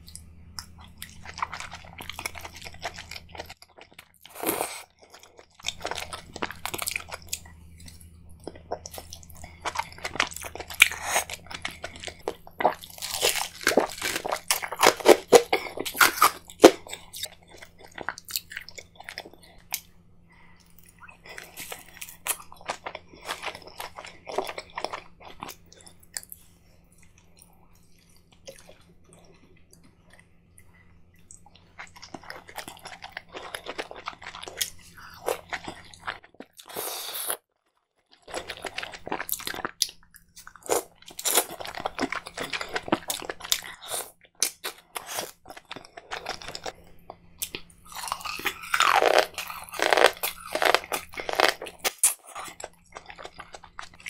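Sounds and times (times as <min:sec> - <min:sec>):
person chewing and crunching: 0:00.0 - 0:37.4, 0:38.0 - 0:54.0.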